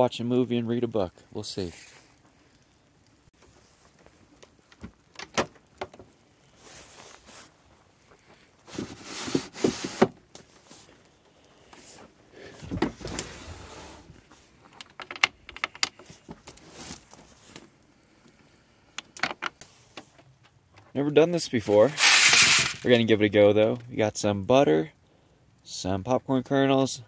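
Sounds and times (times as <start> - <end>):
wooden drawers sliding open and shut: 8.7 - 10.2, 12.4 - 14.2.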